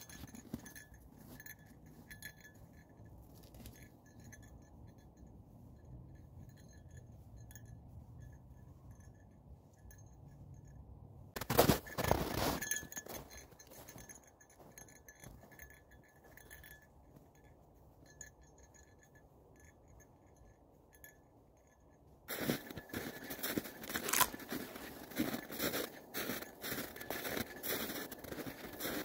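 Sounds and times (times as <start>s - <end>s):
footsteps crunching in snow: 0.0s - 4.4s, 11.4s - 16.7s, 22.3s - 29.0s.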